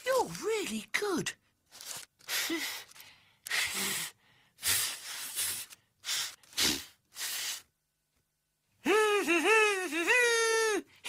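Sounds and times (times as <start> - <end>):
breathy puffs into paper and comb: 1.7 - 7.7.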